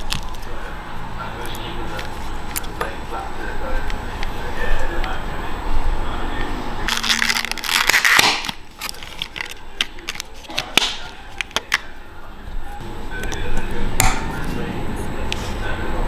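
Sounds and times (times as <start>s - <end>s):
plastic blister pack crinkling: 6.9s - 11.8s.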